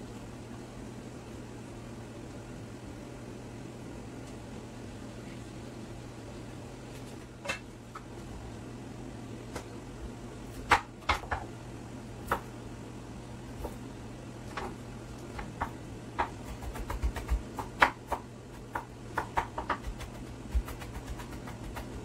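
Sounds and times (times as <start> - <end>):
knife chopping on wooden board: 15.4 - 21.9.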